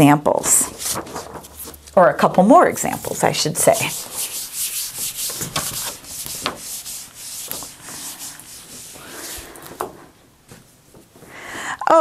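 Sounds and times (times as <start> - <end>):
eraser rubbing on whiteboard: 3.0 - 9.9.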